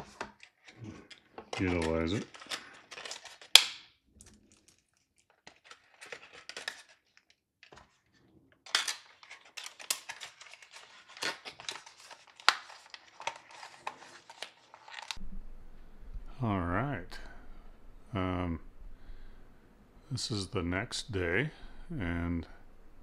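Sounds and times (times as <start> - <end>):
plastic crinkling: 0.0 - 15.2.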